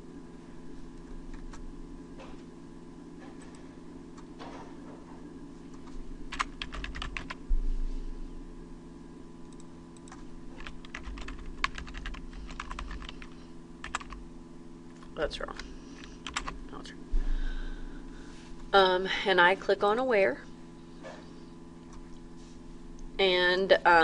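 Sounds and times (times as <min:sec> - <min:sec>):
low hum: 0:00.0 - 0:23.8
typing on computer keyboard: 0:06.3 - 0:07.4, 0:09.5 - 0:14.2, 0:16.2 - 0:16.6.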